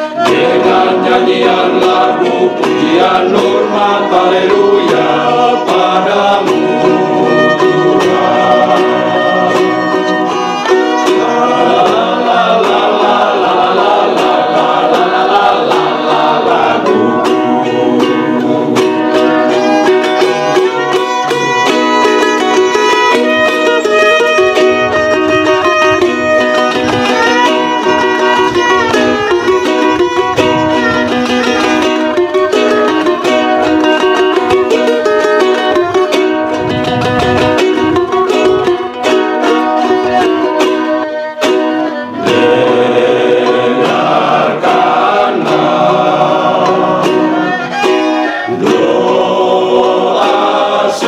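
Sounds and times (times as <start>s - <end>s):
strummed lutes: 0.0s - 51.0s
violin melody: 0.0s - 51.0s
men's choir holding a chord: 0.2s - 10.0s, 11.1s - 19.4s, 42.1s - 47.6s, 48.3s - 51.0s.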